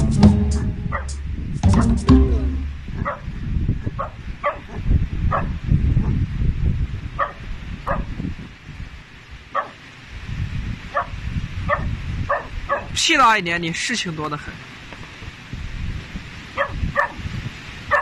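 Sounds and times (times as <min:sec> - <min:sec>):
low rumbling noise: 0:00.0 - 0:04.0.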